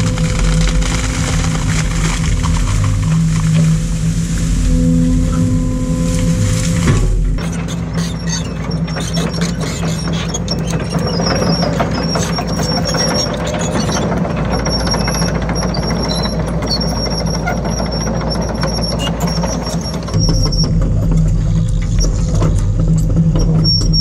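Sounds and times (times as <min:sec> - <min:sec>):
excavator diesel engine running: 0:00.0 - 0:24.0
hydraulic grab knocking and cracking: 0:06.8 - 0:24.0.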